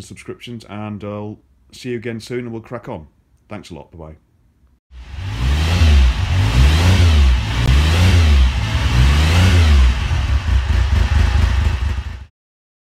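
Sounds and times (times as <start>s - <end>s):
motorcycle engine revving: 5.0s - 12.3s.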